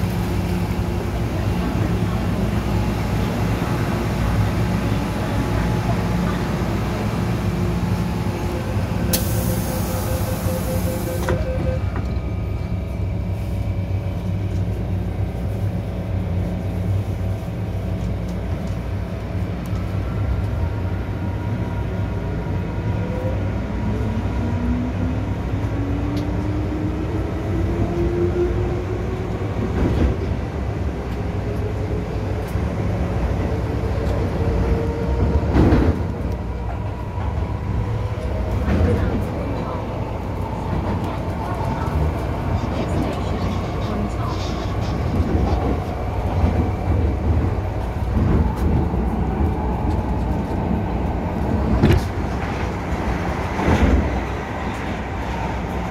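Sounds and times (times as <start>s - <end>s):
door-closing beeps: 9.2s - 12.2s.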